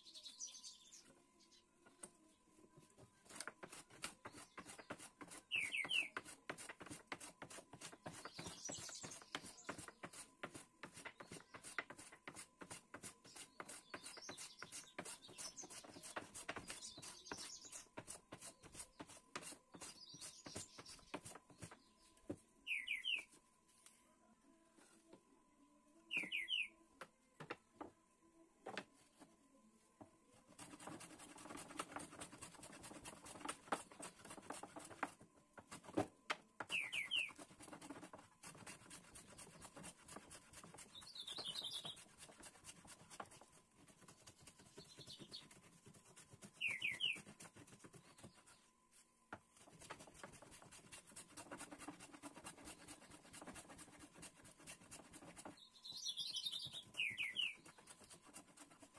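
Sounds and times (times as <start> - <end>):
bird chirping: 0.0 - 2.3, 4.2 - 6.2, 8.0 - 10.1, 13.2 - 19.1, 19.7 - 23.4, 26.1 - 26.8, 36.6 - 37.4, 40.7 - 42.4, 44.4 - 48.7, 55.1 - 58.4
hand plane shaving wood: 3.2 - 21.7, 30.4 - 36.0, 37.2 - 48.6, 49.6 - 55.6, 56.7 - 58.9.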